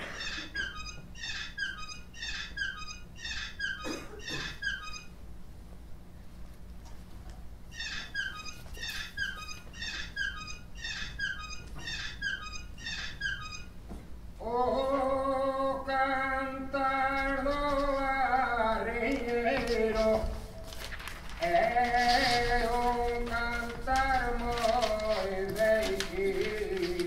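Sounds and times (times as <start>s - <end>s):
high chirping falling notes: 7.7s - 13.7s.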